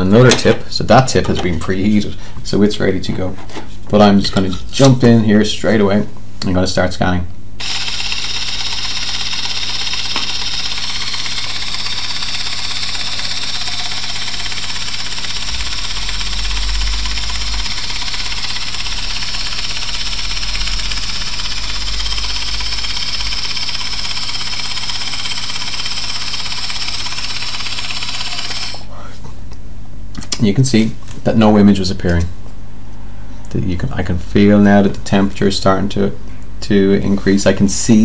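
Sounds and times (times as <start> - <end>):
low hum: 7.6 - 24.0
high-pitched whir: 7.6 - 28.9.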